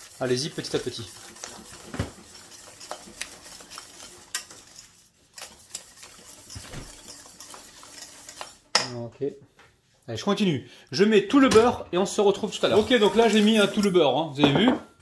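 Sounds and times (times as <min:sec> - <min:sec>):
whisk clicking and scraping pan: 0:00.0 - 0:09.1, 0:12.2 - 0:14.5.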